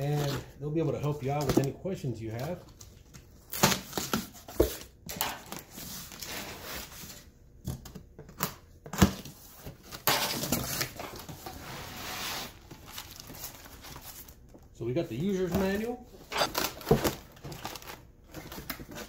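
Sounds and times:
cardboard rustling and scraping: 5.5s - 7.3s, 9.1s - 14.5s, 15.3s - 19.0s
packing tape tearing: 16.3s - 19.0s.

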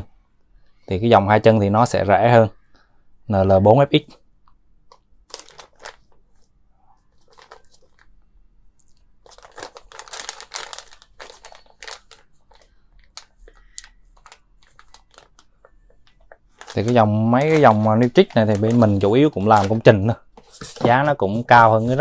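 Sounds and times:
plastic bag crinkling: 5.2s - 6.5s, 7.1s - 8.1s, 9.2s - 20.1s.

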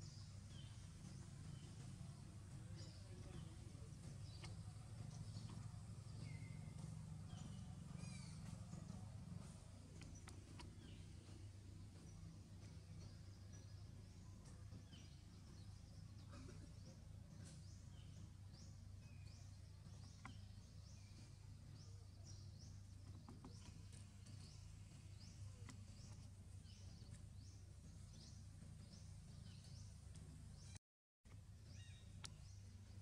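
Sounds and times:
low steady hum: 0.0s - 33.0s
faint clicks: 4.1s - 6.3s, 9.8s - 11.1s.

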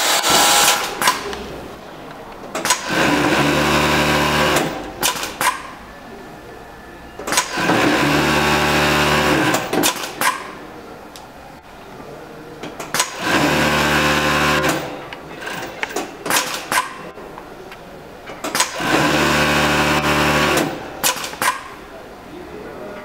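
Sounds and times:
industrial sewing machine stitching: 0.0s - 1.2s, 2.6s - 5.6s, 7.3s - 10.5s, 12.9s - 16.9s, 18.4s - 21.6s.

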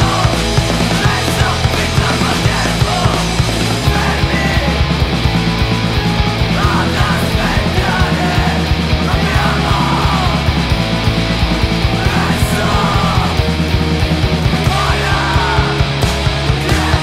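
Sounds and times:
bass guitar: 0.0s - 17.0s
distorted electric guitars: 0.0s - 17.0s
fast driving drums: 0.0s - 17.0s
screamed vocals: 6.5s - 10.5s, 11.9s - 13.4s, 14.6s - 17.0s.

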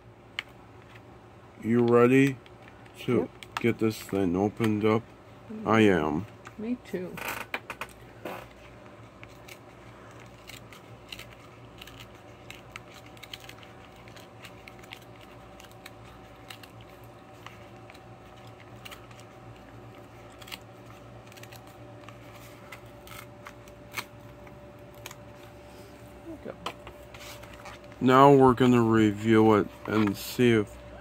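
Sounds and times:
low steady hum: 0.0s - 31.0s
plastic clicks and crackles: 1.8s - 4.8s.

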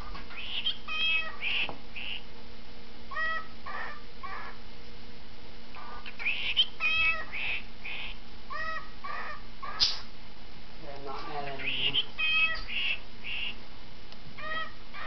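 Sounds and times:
cockatiel calling: 0.0s - 2.3s, 3.1s - 4.6s, 5.8s - 10.1s, 11.2s - 13.6s, 14.4s - 15.0s.

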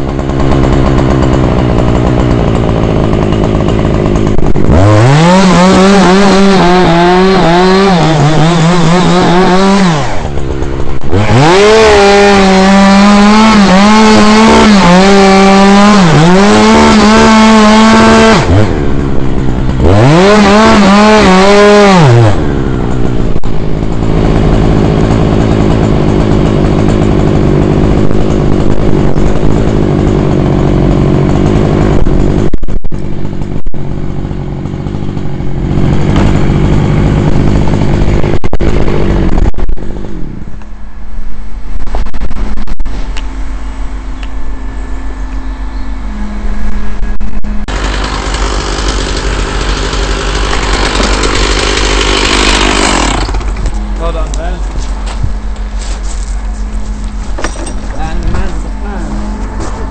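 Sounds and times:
chainsaw cutting wood: 0.0s - 40.8s, 46.1s - 59.9s
knocks and scrapes: 35.7s - 40.0s, 41.3s - 43.3s, 50.0s - 59.9s.

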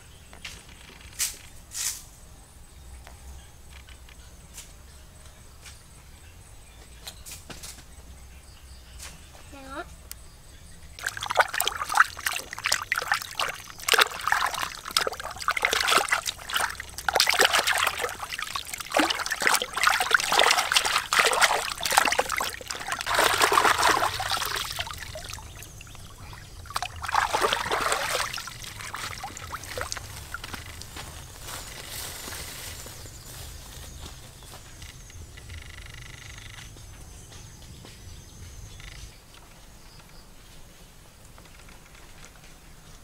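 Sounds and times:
water splashing and sloshing: 10.9s - 32.0s.

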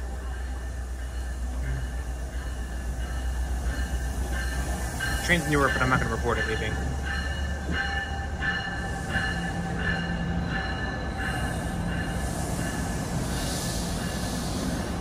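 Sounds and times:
train rumbling: 0.0s - 15.0s
wheels hissing on rail: 0.0s - 15.0s
pulsing ringing tone: 0.2s - 13.0s.

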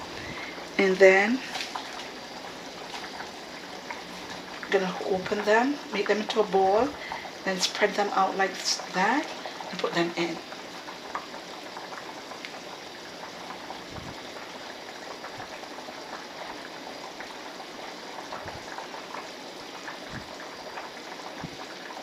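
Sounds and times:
soup boiling and bubbling: 0.0s - 22.0s.

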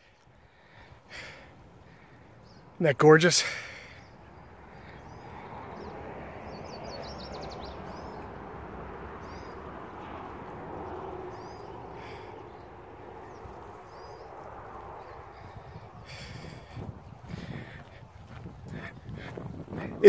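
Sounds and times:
songbirds chirping: 0.0s - 20.0s
wind rushing: 12.6s - 20.0s.

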